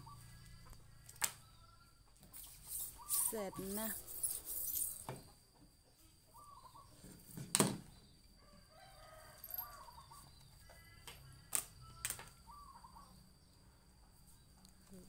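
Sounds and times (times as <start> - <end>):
rooster crowing: 8.4 - 12.7.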